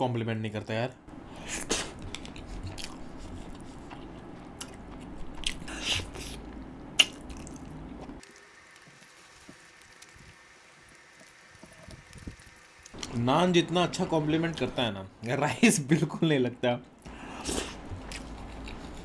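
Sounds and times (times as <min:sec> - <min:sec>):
wet chewing: 0:01.4 - 0:13.2, 0:17.0 - 0:19.0
lip smacks: 0:01.6 - 0:08.2.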